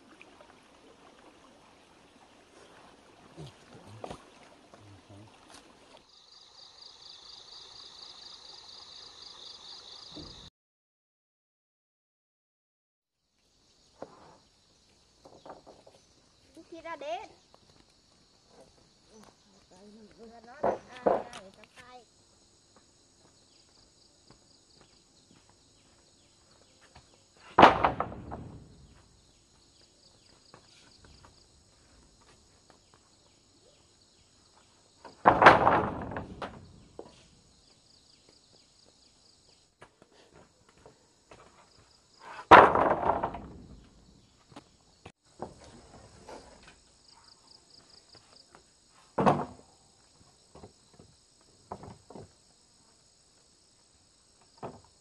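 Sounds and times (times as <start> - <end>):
insects chirring: 0.0 - 10.5, 13.2 - 55.0
heavy knocks on wood: 27.6 - 28.9, 35.2 - 37.1.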